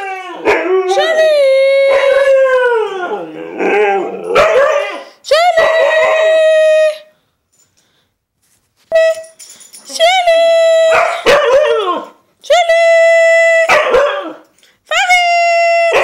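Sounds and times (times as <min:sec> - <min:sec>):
dog howling: 0:00.0 - 0:05.1.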